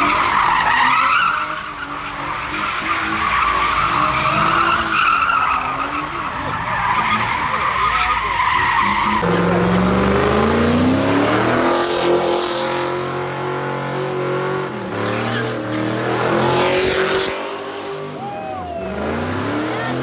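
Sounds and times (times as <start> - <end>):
tyres skidding and squealing: 0.0 - 20.0
car engine revving high: 8.2 - 20.0.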